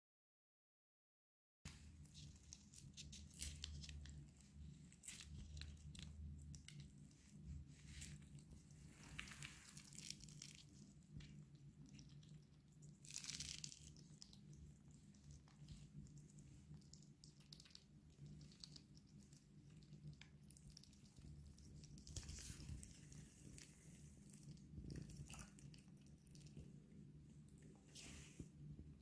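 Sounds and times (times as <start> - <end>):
chipmunk nibbling fruit: 1.7 - 27.8
peel rustling: 1.9 - 12.1.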